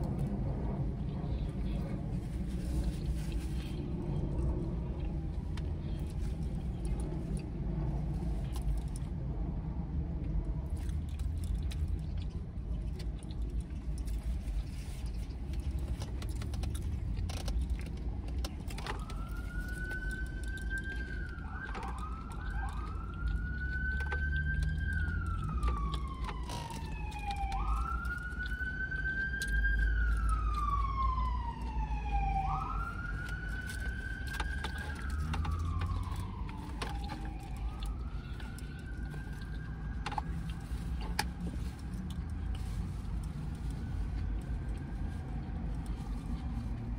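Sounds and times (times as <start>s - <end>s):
steady low rumble: 0.0s - 46.9s
emergency siren wailing: 15.6s - 46.9s.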